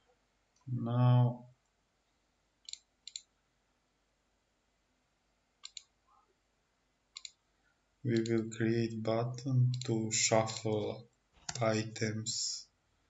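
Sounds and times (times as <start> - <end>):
computer mouse clicking: 2.6 - 3.3, 5.6 - 5.9, 7.2 - 7.4, 8.1 - 8.4, 9.7 - 10.7.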